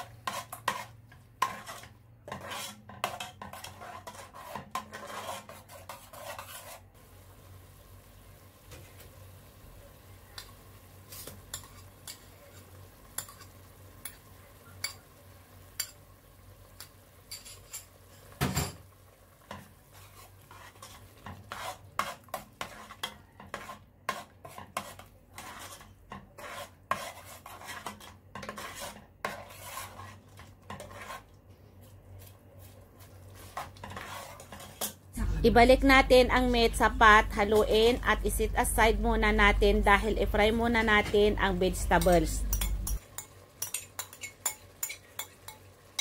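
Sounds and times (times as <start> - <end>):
ladle stirring sauce in pot: 0.0 - 7.0, 10.2 - 18.4, 19.1 - 35.1, 42.0 - 46.0
metal spoon tapping dishware: 42.0 - 45.6.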